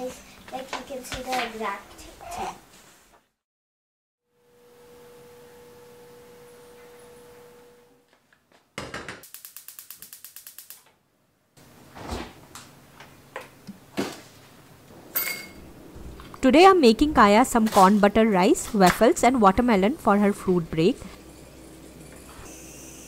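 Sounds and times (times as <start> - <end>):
faint steady hum: 4.3 - 8.1
pressure cooker venting steam: 20.4 - 23.0.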